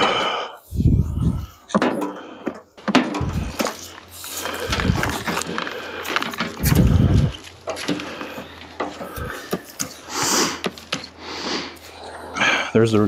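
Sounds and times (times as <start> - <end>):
junk clattering and knocking: 1.2 - 10.0
low thuds: 2.9 - 3.8.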